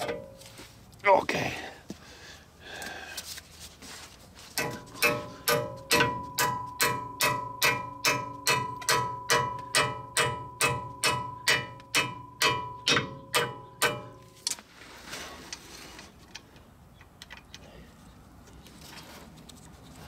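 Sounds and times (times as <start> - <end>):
hammer ringing on metal: 4.6 - 14.2.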